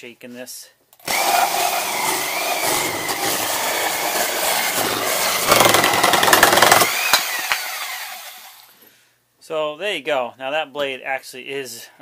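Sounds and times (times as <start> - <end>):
reciprocating saw cutting wood: 1.1 - 8.7.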